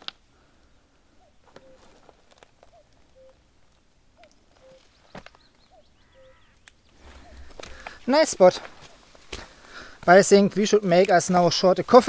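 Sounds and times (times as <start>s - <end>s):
bird two-note call: 5.7s - 6.6s.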